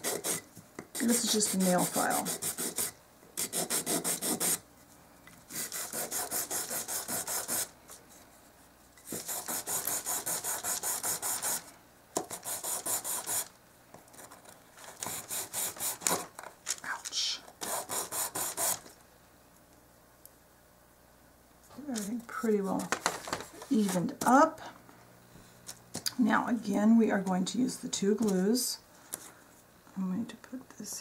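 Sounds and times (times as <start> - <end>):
nail file rubbing on wood: 0.0 - 4.6, 5.5 - 7.7, 9.1 - 11.6, 12.2 - 13.5, 17.6 - 18.8.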